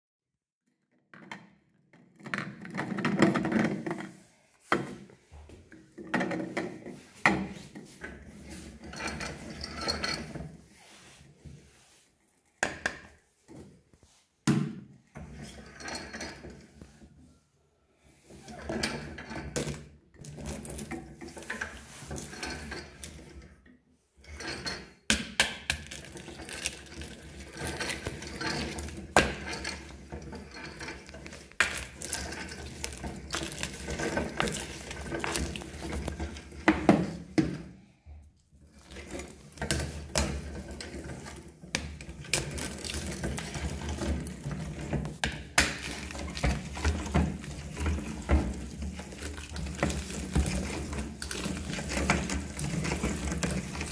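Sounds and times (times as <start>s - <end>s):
metal parts clattering: 25.8s - 36.7s, 38.8s - 53.9s
metal scraping on wood: 26.0s - 37.4s.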